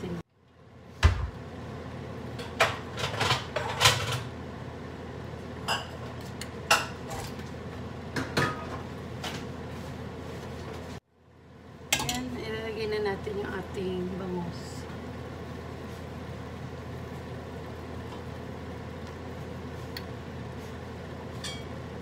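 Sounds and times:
spoon and dishes clinking on pot: 11.9s - 12.2s, 21.4s - 21.8s.

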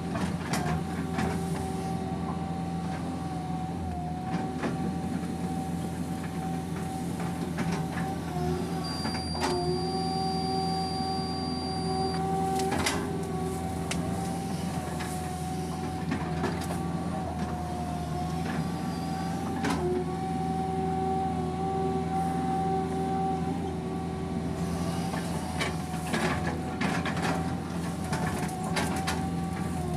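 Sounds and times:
excavator engine hum: 0.0s - 29.9s
hydraulic whine: 6.6s - 29.9s.

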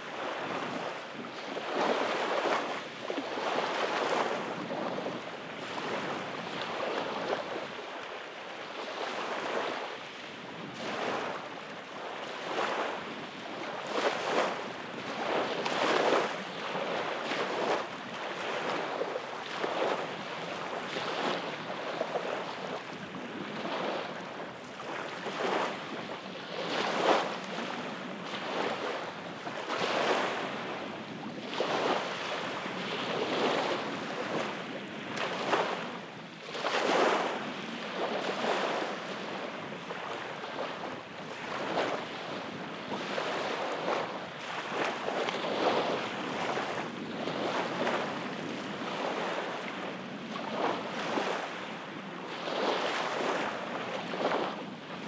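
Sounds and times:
small waves breaking on sand: 0.0s - 55.0s.

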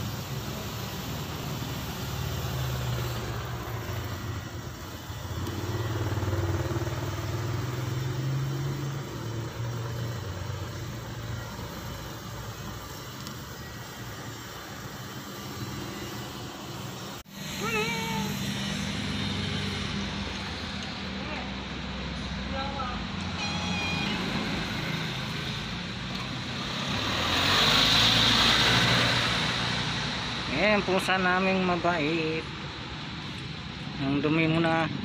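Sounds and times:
engine running with low hum: 0.0s - 23.0s.

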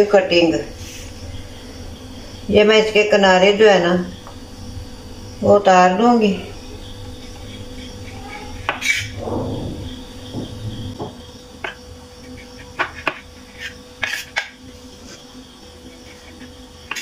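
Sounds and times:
faint steady hum: 0.0s - 17.0s
knife scraping ceramic plate: 7.2s - 9.2s, 12.3s - 14.6s.

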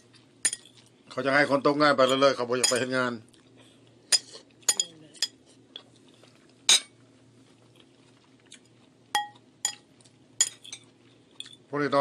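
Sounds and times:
cutlery clinking on a plate: 2.0s - 2.9s, 4.1s - 5.4s, 9.2s - 9.8s, 10.4s - 11.6s.

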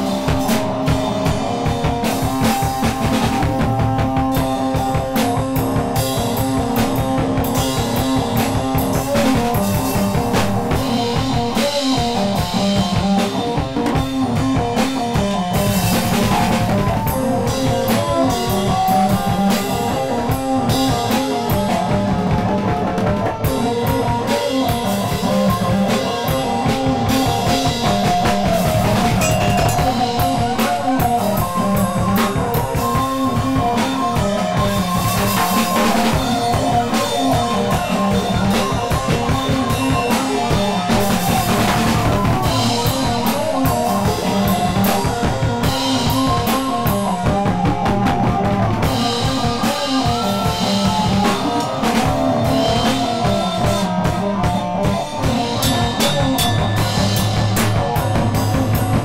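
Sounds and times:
drum kit beat: 0.0s - 59.0s
guitar: 0.0s - 59.0s.

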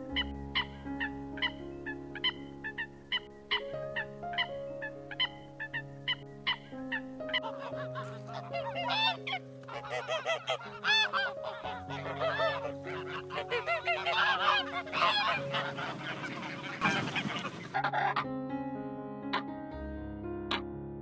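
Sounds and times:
geese honking: 0.1s - 18.2s.

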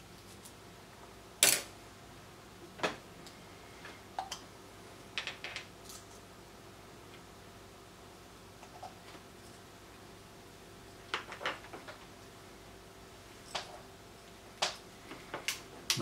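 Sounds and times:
small objects clicking and tapping: 5.2s - 6.2s, 11.1s - 12.0s.

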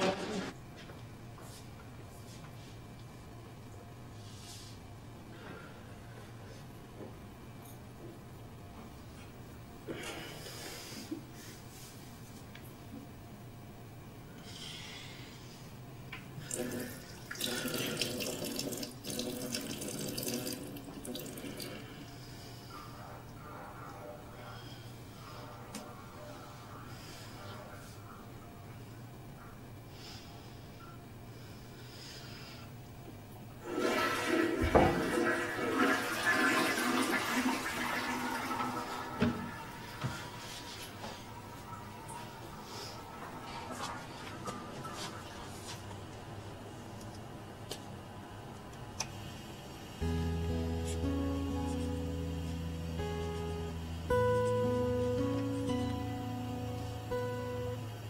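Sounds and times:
toilet flushing: 16.4s - 21.9s, 33.6s - 45.3s
tap water running into basin: 16.5s - 21.7s, 33.6s - 40.1s.

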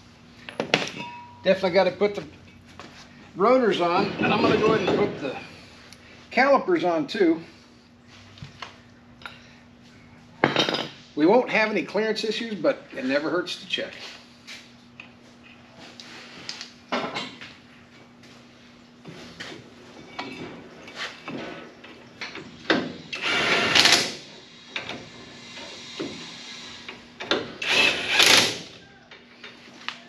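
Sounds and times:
knocks and clinks of tools: 0.4s - 1.4s
handheld power tool running: 23.1s - 24.2s, 27.6s - 28.7s.

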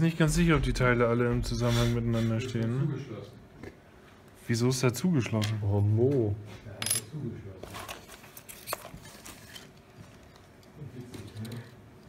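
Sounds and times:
metal parts set on wooden table: 6.8s - 9.7s.

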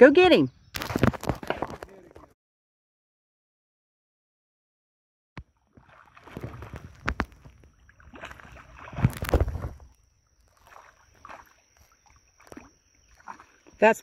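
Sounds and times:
fish splashing and thrashing in water: 0.8s - 1.9s, 5.4s - 13.8s.

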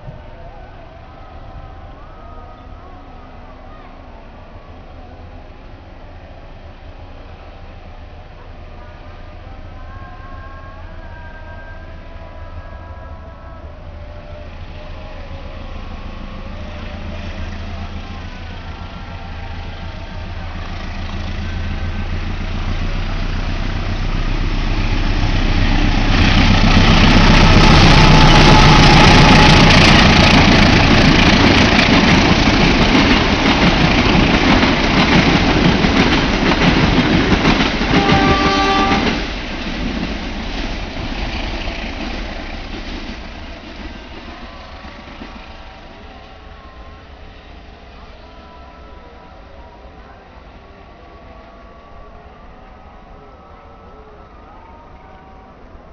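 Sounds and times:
diesel locomotive rumble: 0.0s - 53.3s.

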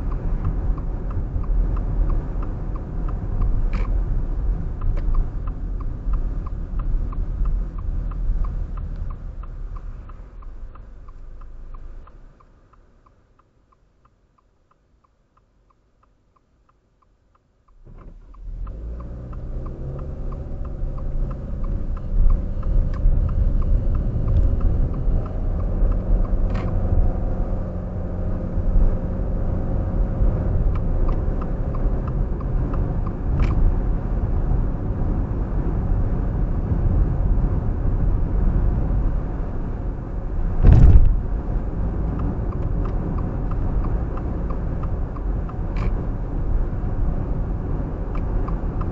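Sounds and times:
road and engine rumble: 0.0s - 48.9s
turn signal ticking: 0.0s - 48.9s
heavy thump from a bump: 40.6s - 41.3s.

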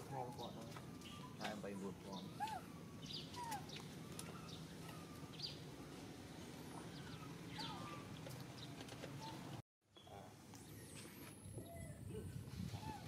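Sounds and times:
animal chirping and squeaking: 0.4s - 5.9s.

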